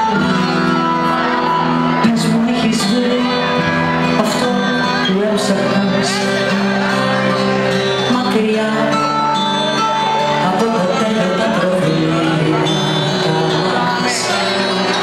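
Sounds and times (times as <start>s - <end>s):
keyboard accompaniment: 0.0s - 15.0s.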